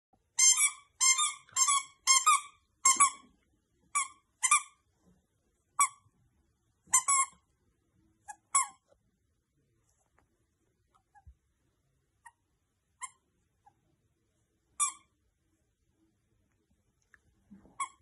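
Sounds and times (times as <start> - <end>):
dog toy squeaking: 0.4 - 3.2, 3.9 - 4.8, 6.9 - 7.4, 8.3 - 8.8, 13.0 - 13.2, 14.8 - 15.1, 17.8 - 18.0.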